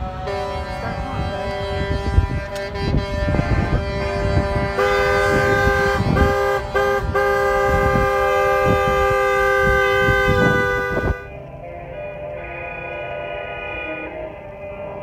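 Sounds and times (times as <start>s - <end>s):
vehicle horns honking: 0.0s - 11.4s.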